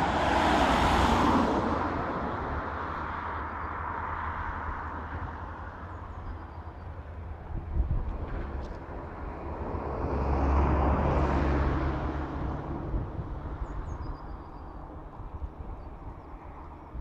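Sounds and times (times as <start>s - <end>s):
vehicle passing by: 0.0s - 5.7s, 8.2s - 14.6s.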